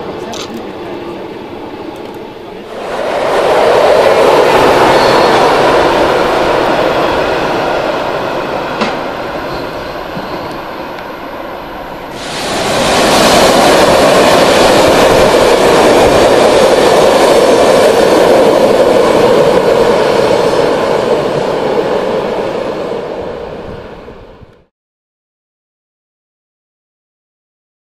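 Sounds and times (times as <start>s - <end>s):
locomotive passing with wheel noise: 0.0s - 24.6s
train passing with wheel noise: 0.0s - 24.7s.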